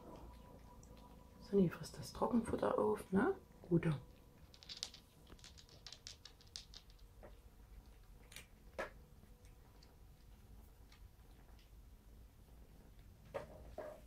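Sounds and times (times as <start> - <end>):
cat crunching dry kibble: 4.0 - 13.2.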